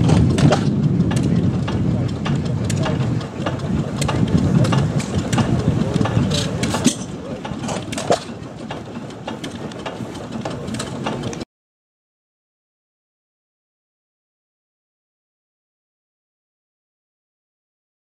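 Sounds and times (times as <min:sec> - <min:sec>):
sharp engine knocks: 0:00.0 - 0:11.4
tractor engine running: 0:00.0 - 0:11.4.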